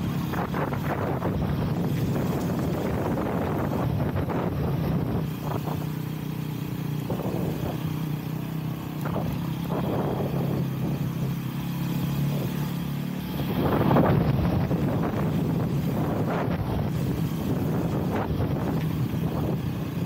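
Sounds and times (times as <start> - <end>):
wind noise on microphone: 0.0 - 5.9, 7.0 - 7.9, 9.0 - 11.3, 13.3 - 20.0
dirt bike engine running: 0.0 - 20.0.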